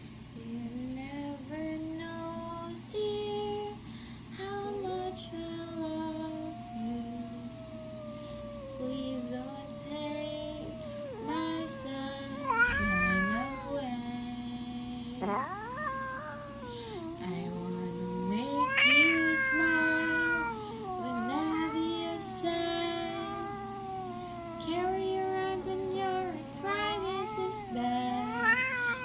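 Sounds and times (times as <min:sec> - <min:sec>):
cat meowing: 0:10.6 - 0:14.0, 0:15.2 - 0:29.0.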